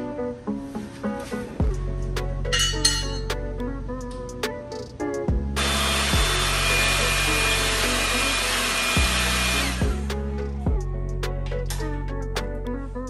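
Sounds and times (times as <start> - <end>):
beat music: 0.0 - 13.0
power tool whining: 5.6 - 10.1.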